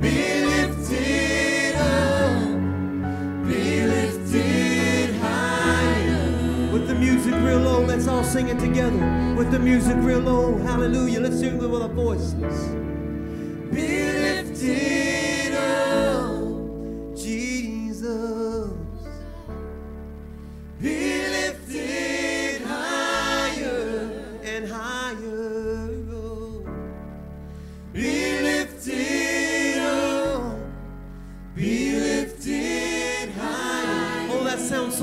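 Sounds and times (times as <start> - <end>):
voices singing along: 0.0 - 12.7, 13.4 - 17.9, 20.8 - 26.1, 27.9 - 30.8, 31.5 - 35.0
gospel music chords and bass: 0.0 - 35.0
man singing into a microphone: 6.7 - 12.4, 24.5 - 26.7.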